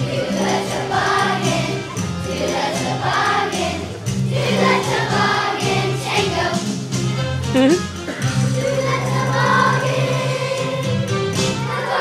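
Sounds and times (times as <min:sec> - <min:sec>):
children's choir singing: 0:00.0 - 0:06.9, 0:08.5 - 0:12.0
instrumental accompaniment low notes: 0:06.7 - 0:09.0.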